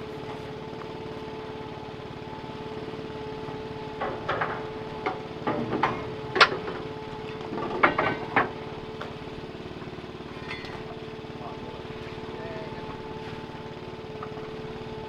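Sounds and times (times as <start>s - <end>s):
boat engine running: 0.0s - 15.0s
knocks and clatters of gear: 3.9s - 9.2s, 9.8s - 11.1s.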